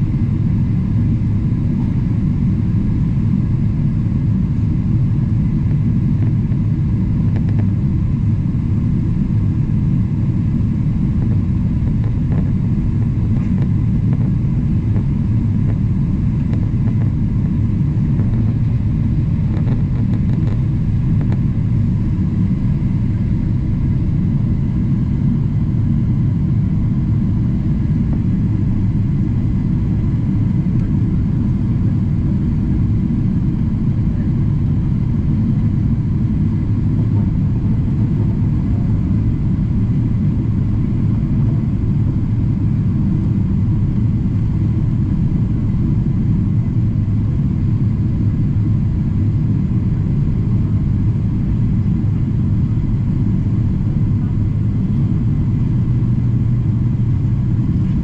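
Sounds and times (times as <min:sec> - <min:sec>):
faint steady hum: 0:00.0 - 0:58.0
jet engines and rushing air: 0:00.0 - 0:58.0.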